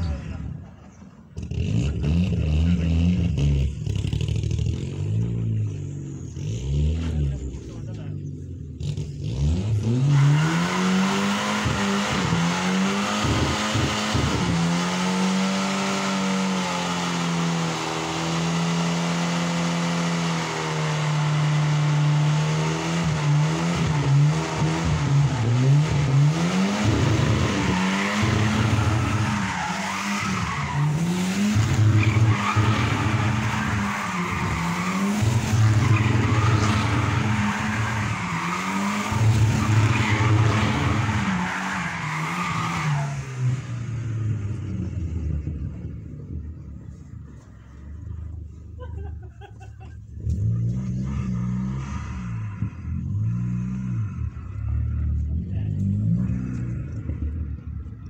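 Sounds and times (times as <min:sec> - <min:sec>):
car engine revving: 0:00.0 - 0:48.5, 0:50.1 - 0:58.0.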